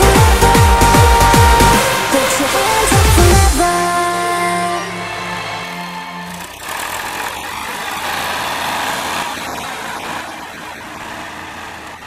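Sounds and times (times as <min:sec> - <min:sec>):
background music: 0:00.0 - 0:07.4
tractor diesel engine running: 0:00.0 - 0:12.0.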